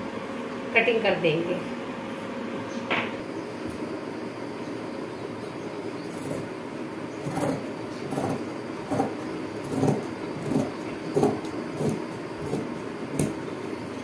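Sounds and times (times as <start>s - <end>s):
scissors cutting fabric: 7.2s - 13.4s.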